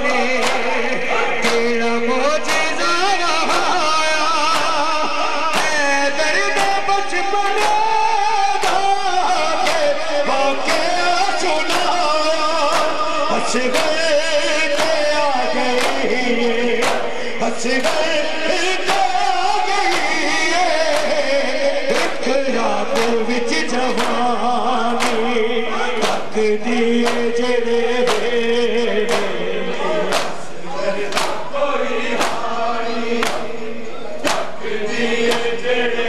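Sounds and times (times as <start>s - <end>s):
man singing a lament: 0.0s - 33.8s
crowd of men chanting: 0.0s - 36.0s
hands slapping bare chests: 16.8s - 17.1s, 26.0s - 26.3s, 30.1s - 30.4s, 31.1s - 31.4s, 33.2s - 33.5s, 34.2s - 34.6s.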